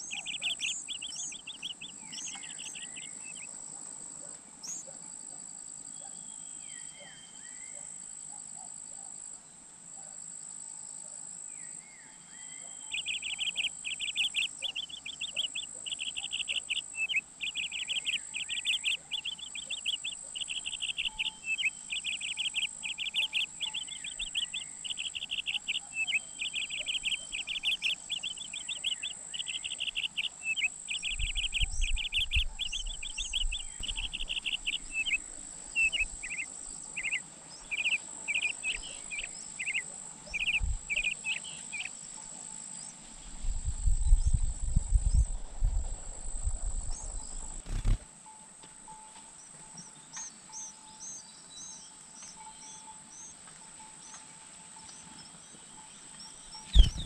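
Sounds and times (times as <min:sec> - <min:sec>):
nestlings chirping: 0:00.0 - 0:03.5, 0:12.6 - 0:42.0, 0:46.8 - 0:48.0, 0:56.5 - 0:57.0.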